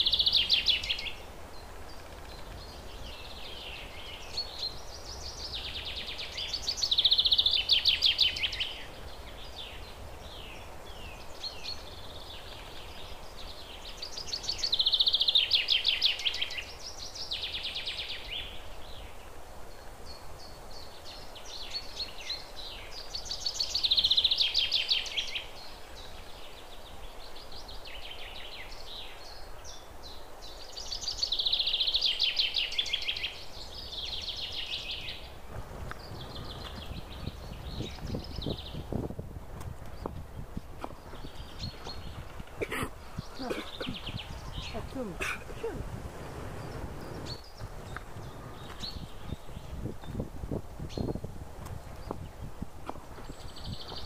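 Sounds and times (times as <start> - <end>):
bird chirps: 39.9 - 45.8
songbird trilling: 40.8 - 45.8.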